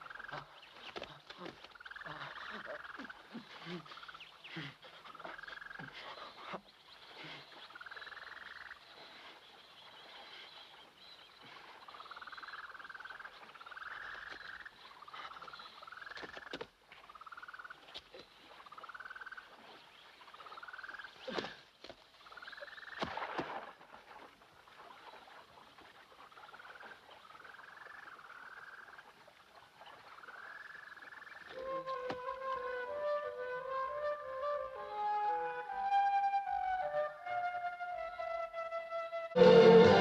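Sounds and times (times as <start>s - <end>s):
steady high trill: 39.4s - 40.0s.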